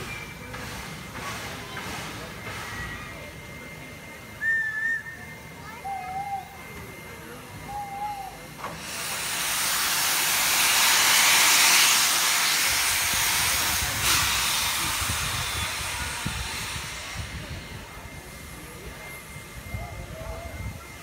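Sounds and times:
steam locomotive hissing steam: 0:00.0 - 0:21.0.

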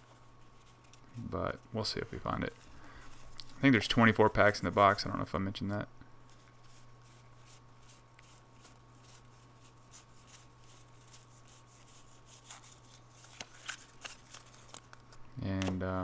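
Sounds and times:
cards flicking through a stack: 0:12.4 - 0:15.9.

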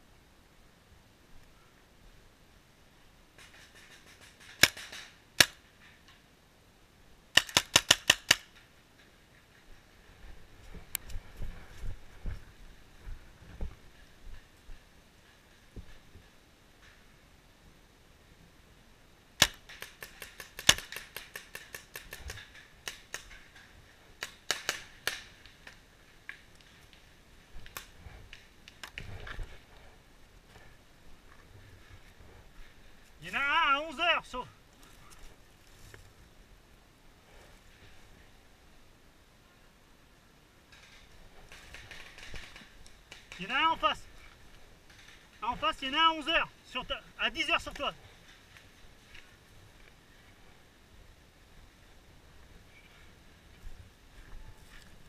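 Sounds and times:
paintball marker firing: 0:19.4 - 0:23.3.

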